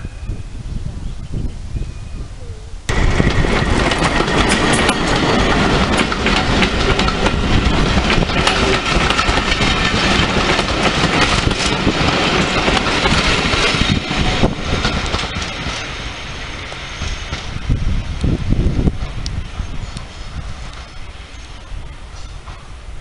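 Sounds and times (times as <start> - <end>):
coaches rolling over rails: 2.9 - 23.0
diesel locomotive engine passing: 2.9 - 23.0.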